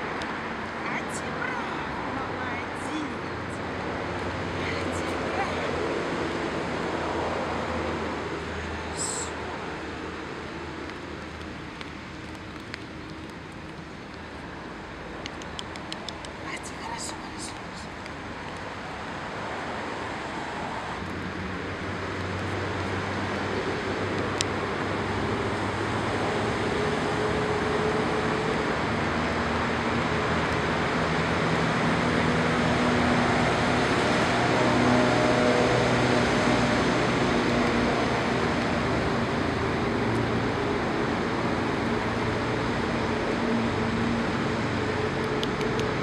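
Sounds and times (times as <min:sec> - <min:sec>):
road traffic: 0:00.0 - 0:46.0.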